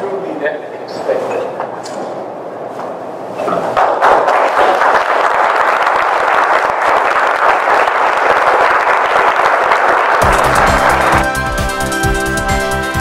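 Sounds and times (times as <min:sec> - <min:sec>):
audience applauding: 0:03.8 - 0:11.9.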